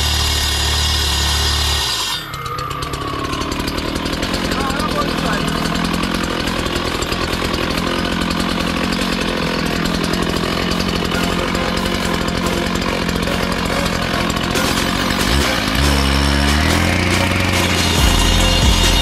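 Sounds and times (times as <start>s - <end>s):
cut-off saw cutting concrete: 0.0s - 19.0s
music: 6.2s - 19.0s.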